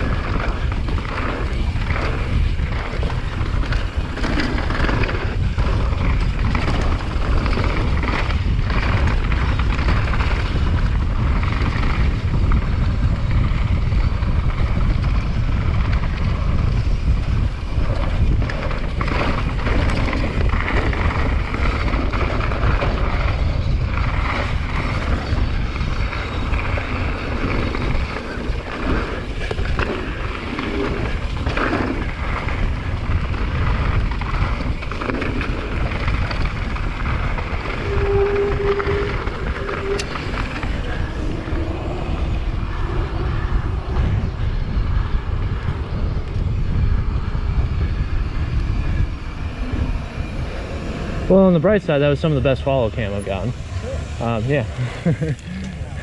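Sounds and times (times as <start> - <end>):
bike knocks and rattles: 0.0 - 41.3
wind buffeting microphone: 0.0 - 56.0.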